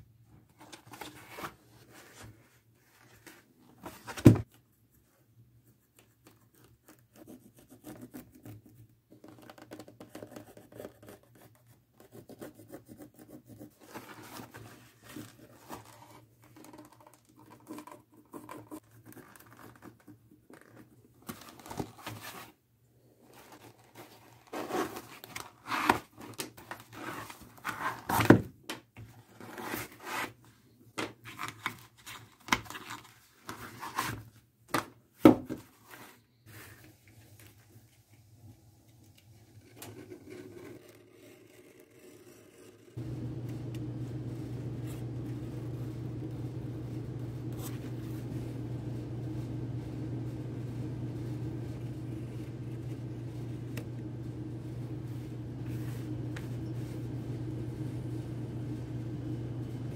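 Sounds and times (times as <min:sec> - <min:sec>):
faint low hum: 0:43.0 - 0:59.9.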